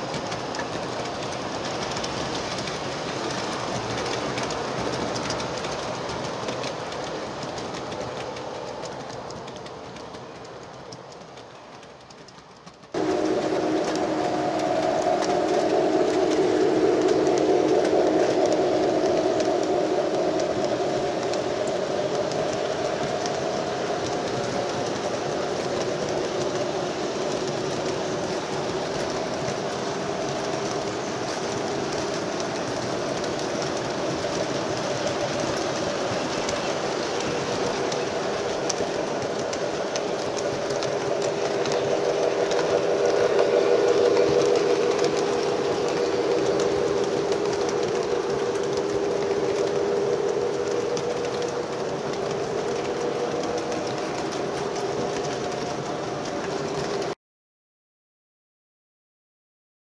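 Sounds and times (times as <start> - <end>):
light ticking over rails: 0.0 - 57.1
model trains rolling hum: 0.0 - 57.2.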